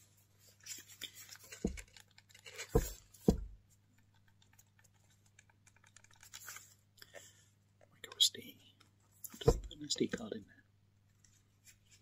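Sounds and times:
plastic clicks and scratches: 0.6 - 3.3, 3.9 - 6.8.

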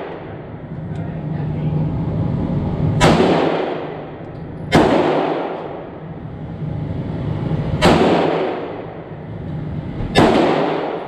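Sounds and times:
steady low hum: 0.0 - 11.0
pistol shots echoing: 3.0 - 4.1, 4.7 - 5.8, 7.8 - 8.9, 10.1 - 11.0.

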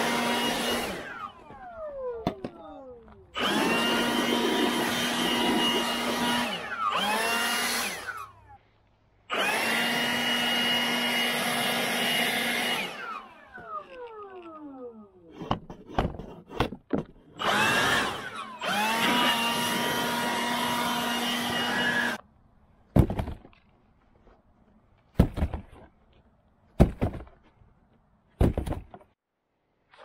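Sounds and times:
leaf blower whining: 0.0 - 15.4, 17.4 - 22.2.

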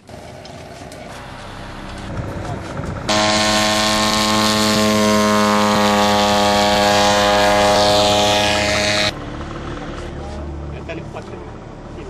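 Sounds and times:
propeller engine running: 0.0 - 12.0.

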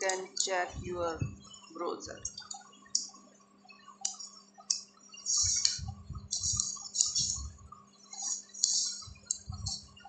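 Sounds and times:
faint low hum: 0.0 - 10.0
mouse and keyboard clicks: 4.0 - 7.5, 8.1 - 9.8.

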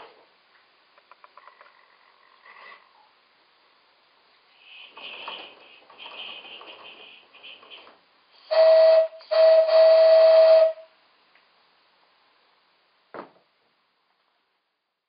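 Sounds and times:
model locomotive whistle blasts: 4.6 - 11.0.

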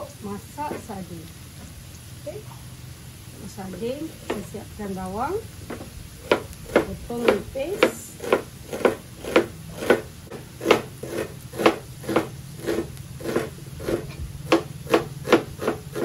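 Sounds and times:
knife chopping onion on board: 6.2 - 16.0.

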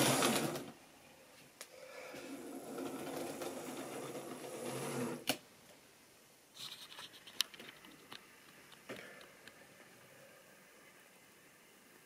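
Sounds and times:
small clicks and handling noises: 6.6 - 9.6.

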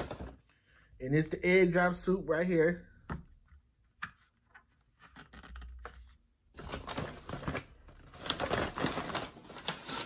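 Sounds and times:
paper bag rustling and crinkling: 6.5 - 10.0.

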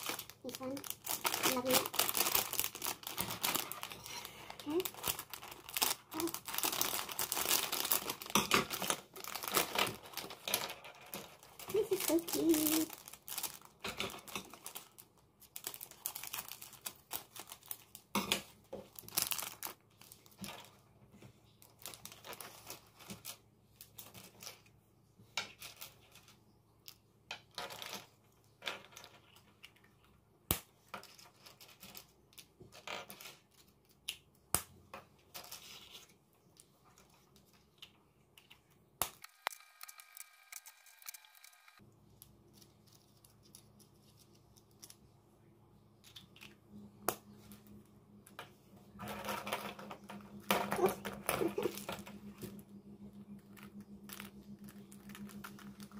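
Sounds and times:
plastic packaging crinkling: 0.0 - 20.8, 21.6 - 24.6, 50.2 - 52.6, 53.4 - 55.9.

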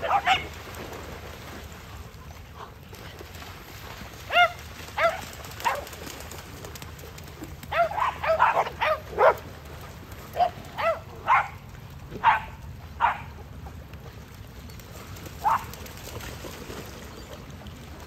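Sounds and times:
dogs barking in high yips: 0.0 - 0.6, 4.3 - 6.0, 7.6 - 9.4, 10.3 - 13.4, 15.4 - 15.8
dogs splashing through water: 0.0 - 18.0.

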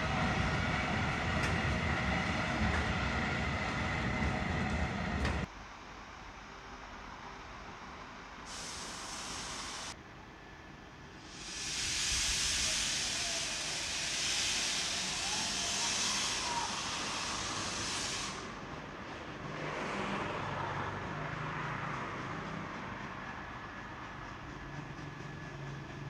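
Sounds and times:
standing train running sound: 0.0 - 5.6, 7.2 - 19.6, 20.8 - 26.0
steam hissing from locomotive: 8.4 - 10.0, 11.2 - 19.1.

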